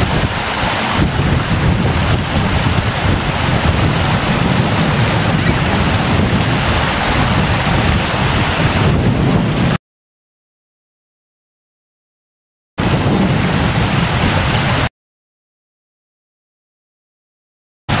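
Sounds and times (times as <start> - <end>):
water rushing over rocks: 0.0 - 9.8, 12.8 - 14.9
wind buffeting microphone: 0.0 - 9.8, 12.8 - 14.9.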